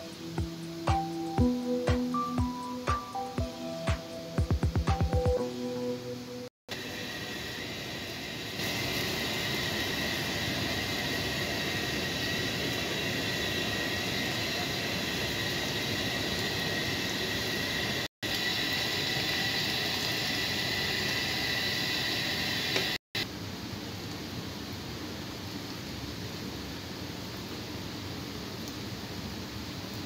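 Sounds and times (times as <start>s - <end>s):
gas burner roar: 0.0s - 4.7s, 6.7s - 27.0s
faint high whine: 0.0s - 23.3s
sauce boiling: 6.7s - 23.0s.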